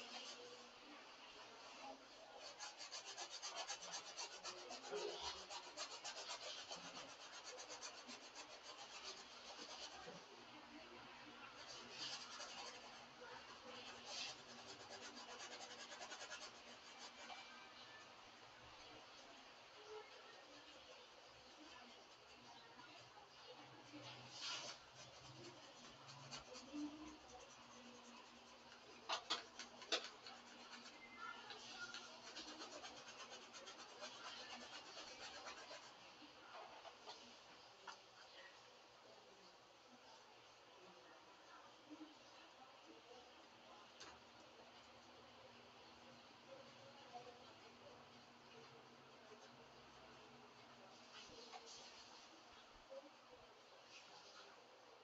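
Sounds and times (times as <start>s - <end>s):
paintbrush scrubbing canvas: 0.0s - 0.6s, 2.1s - 10.3s, 11.4s - 18.1s, 23.9s - 36.1s.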